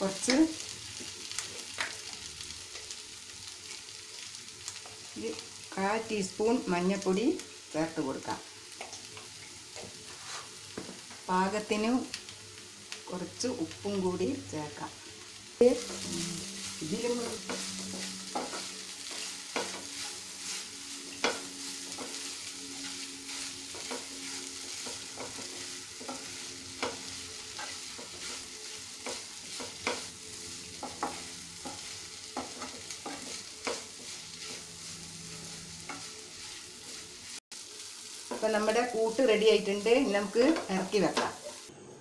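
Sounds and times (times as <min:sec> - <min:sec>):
food sizzling in oil: 0:00.0 - 0:41.7
utensil scraping a pan: 0:09.9 - 0:10.6, 0:15.8 - 0:37.4.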